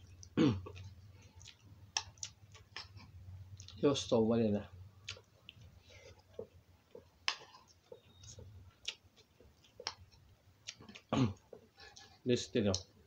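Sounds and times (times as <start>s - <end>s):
person chewing food: 0.0s - 3.8s, 4.9s - 12.9s
wet mouth clicks and smacks: 1.4s - 3.0s, 9.6s - 10.1s.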